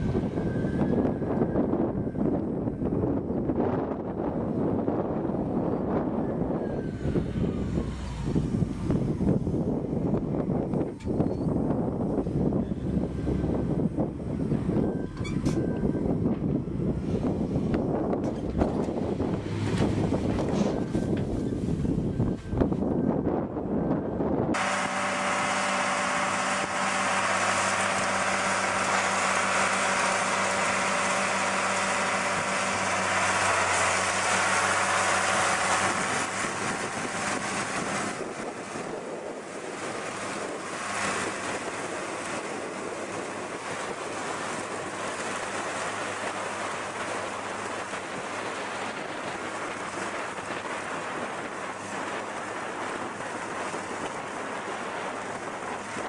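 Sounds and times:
tractor engine running: 0:00.0 - 0:56.0
wind noise on microphone: 0:00.0 - 0:56.0
hay rake rushing noise: 0:24.6 - 0:56.0.

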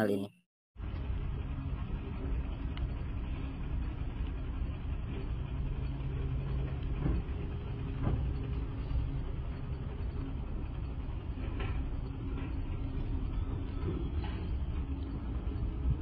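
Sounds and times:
excavator diesel engine running: 0:00.8 - 0:16.0.

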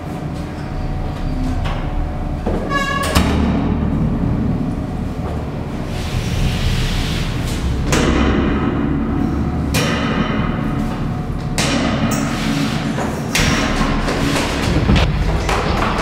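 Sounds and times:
low drone: 0:00.0 - 0:16.0
heavy percussion hits: 0:07.6 - 0:12.2, 0:13.3 - 0:16.0.

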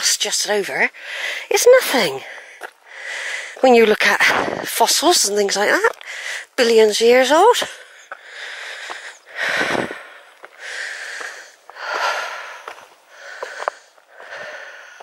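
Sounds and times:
heavy rhythmic breathing: 0:02.2 - 0:03.7, 0:07.6 - 0:15.0
footsteps on loose stones: 0:02.4 - 0:02.8, 0:03.5 - 0:15.0.

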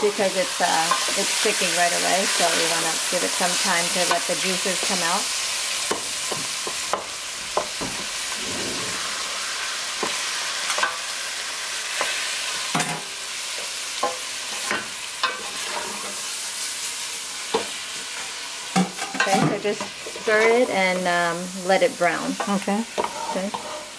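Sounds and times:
meat sizzling in a pot: 0:00.0 - 0:23.9
wooden spoon scraping a pot: 0:08.2 - 0:10.2, 0:22.9 - 0:23.9.

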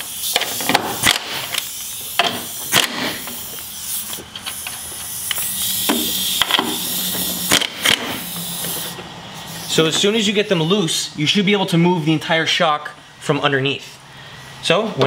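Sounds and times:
impact wrench rattling: 0:00.0 - 0:10.2
air hiss: 0:00.0 - 0:11.0.

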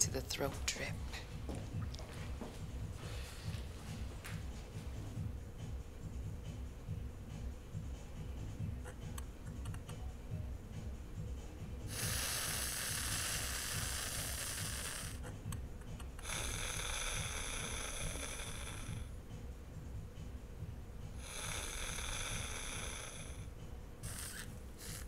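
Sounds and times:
person sniffing: 0:11.9 - 0:15.2, 0:24.0 - 0:25.0.

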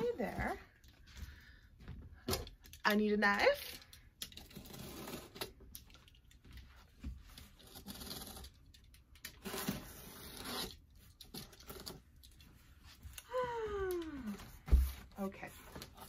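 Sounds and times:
utility knife slicing packing tape: 0:09.4 - 0:12.0.

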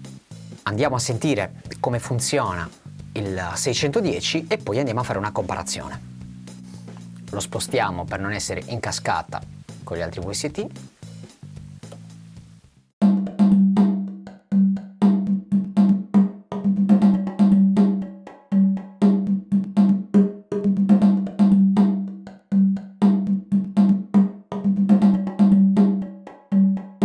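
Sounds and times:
rhythmic drum hits: 0:13.0 - 0:27.0.

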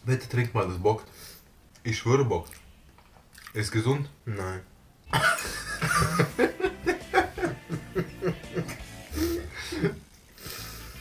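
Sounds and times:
man laughing hard: 0:05.1 - 0:10.0.

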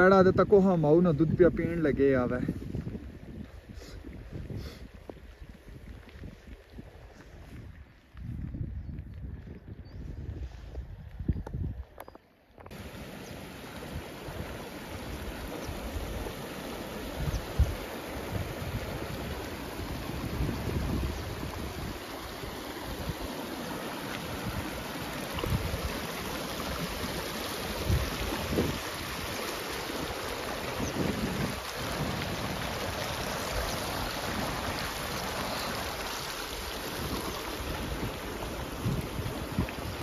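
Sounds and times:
wind bumping microphone: 0:00.0 - 0:12.0, 0:17.1 - 0:23.3, 0:24.2 - 0:40.0
rain falling: 0:12.7 - 0:40.0
stream rushing over stones: 0:12.7 - 0:40.0.

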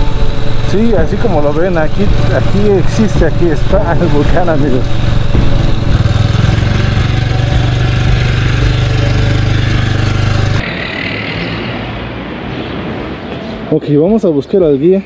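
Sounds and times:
motorcycle engine running: 0:00.0 - 0:11.3
open-air background: 0:00.0 - 0:15.0.

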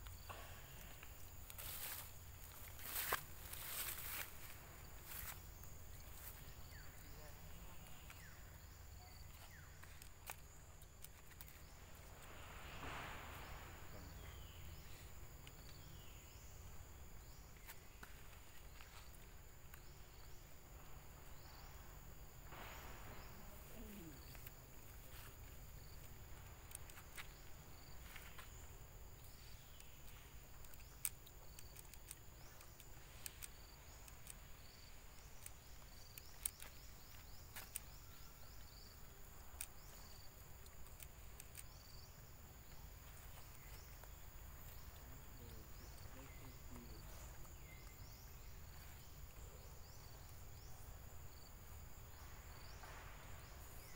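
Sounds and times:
high insect drone: 0:00.0 - 0:53.9
small insect chirps: 0:00.0 - 0:53.9
faint clicks: 0:29.2 - 0:49.4.

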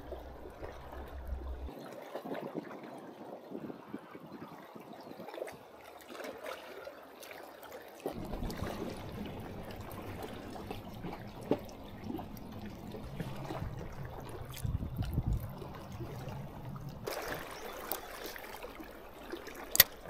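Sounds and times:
low rumble: 0:00.0 - 0:01.7, 0:08.1 - 0:17.1
water clicks and splashes: 0:00.0 - 0:03.0, 0:05.0 - 0:20.0
seawater lapping and trickling: 0:00.0 - 0:20.0.

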